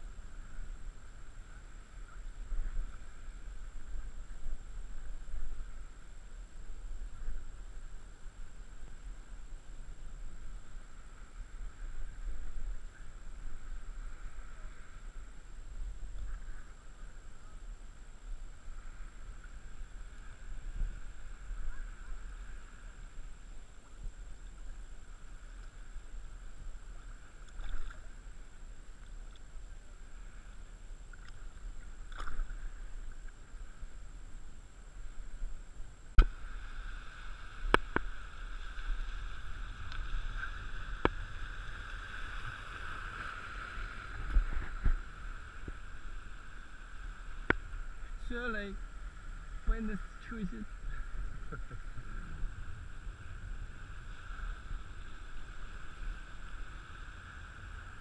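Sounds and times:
wind rumble on microphone: 0.0 - 58.0
water lapping and sloshing: 18.6 - 30.4, 31.1 - 33.8.

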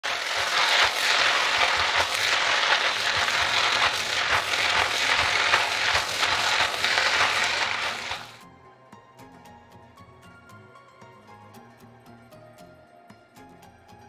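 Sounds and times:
noodles sizzling in wok: 0.0 - 8.4
utensils scraping and clacking on pan: 0.0 - 8.4.

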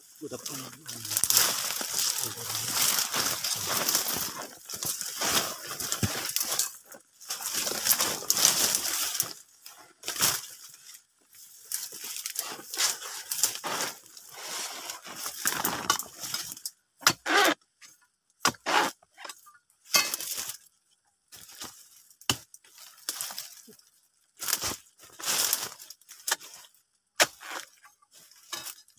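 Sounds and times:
dry fronds rustling and crackling: 0.0 - 16.8, 20.1 - 28.9
boots stepping through dry litter: 0.5 - 9.5, 24.4 - 26.2.

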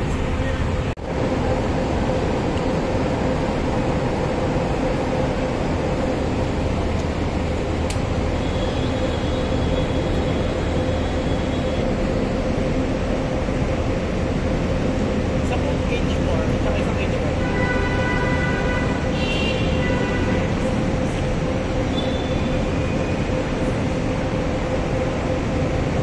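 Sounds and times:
machine drone: 0.0 - 26.0.

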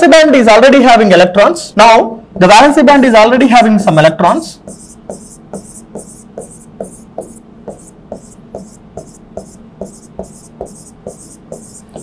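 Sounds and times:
pen tapping on screen: 4.7 - 12.0.

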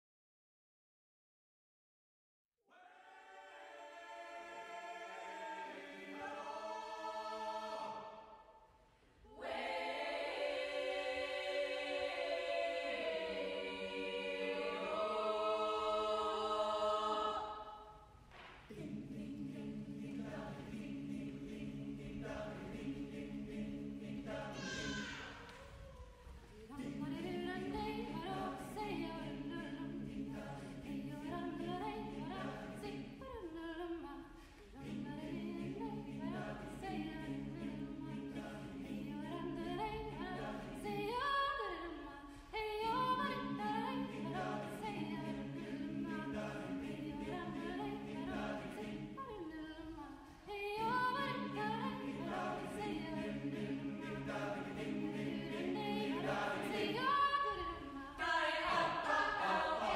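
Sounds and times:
a cappella choir singing: 2.7 - 59.9
singers breathing: 34.3 - 34.8.

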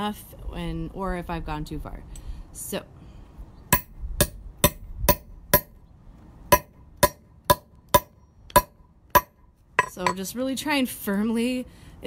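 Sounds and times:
hammer striking metal tool: 9.8 - 10.2.

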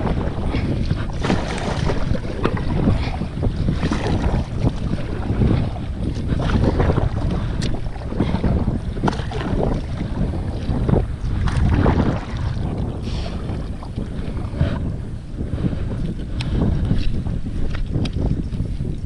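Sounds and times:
paddle splashing in water: 0.0 - 14.9
water washing along hull: 0.0 - 19.0
wind buffeting microphone: 0.0 - 19.0.

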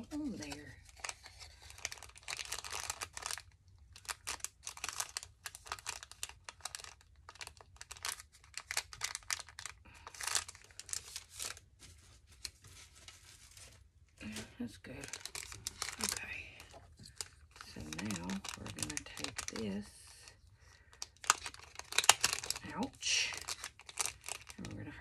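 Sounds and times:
paper rustling and crinkling: 0.0 - 20.2, 20.9 - 24.8.

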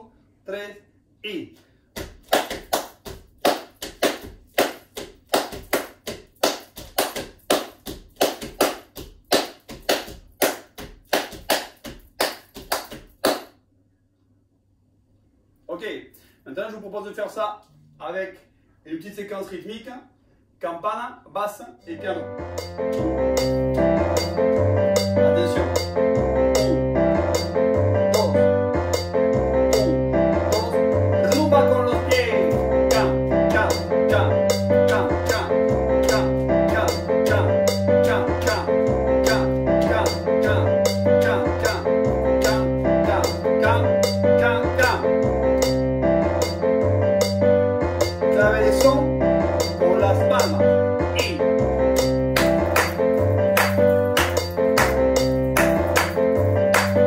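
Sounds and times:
bare feet stamping on floor: 1.9 - 13.4
hands clapping: 1.9 - 13.6, 52.0 - 57.0
salsa music with piano and bass: 3.4 - 13.4, 21.9 - 57.0
sharp percussive hits: 22.4 - 31.5, 45.6 - 48.3, 51.2 - 57.0.

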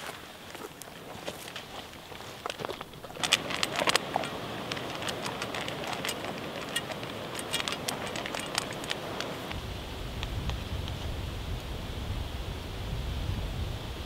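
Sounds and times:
dog crunching kibble in metal bowl: 0.8 - 9.5.

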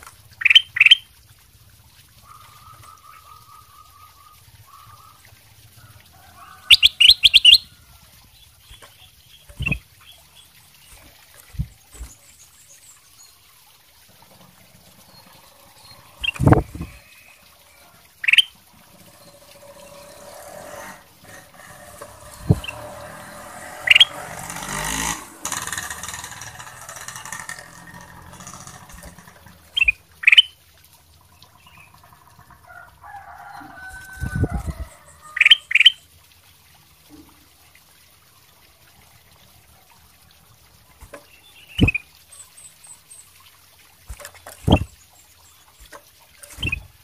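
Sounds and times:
bird sharp rising calls: 6.4 - 7.8, 15.0 - 17.5, 18.2 - 30.5, 41.6 - 42.0, 46.5 - 46.9.

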